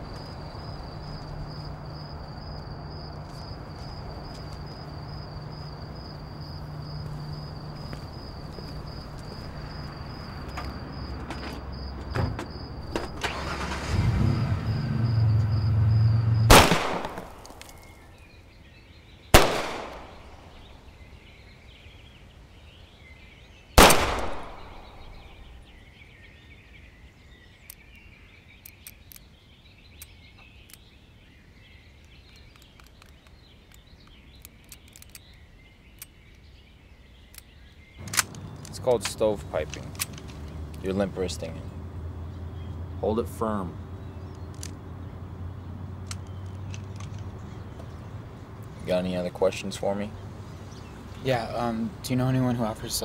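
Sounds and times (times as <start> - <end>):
insect trill: 0.0 - 18.9, 19.8 - 26.5
faint birdsong: 0.0 - 53.0
pistol shots: 16.5 - 17.6, 19.4 - 20.5, 23.8 - 25.4.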